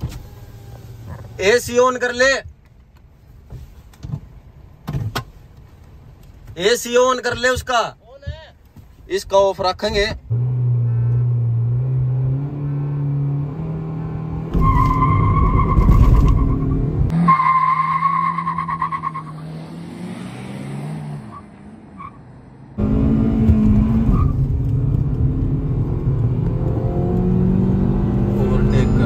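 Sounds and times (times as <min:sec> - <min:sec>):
car engine revving: 0:10.3 - 0:29.0.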